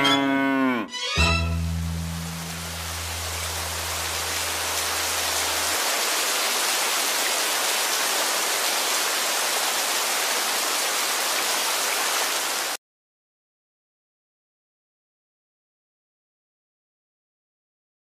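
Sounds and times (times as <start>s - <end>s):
steady rain: 1.6s - 12.8s.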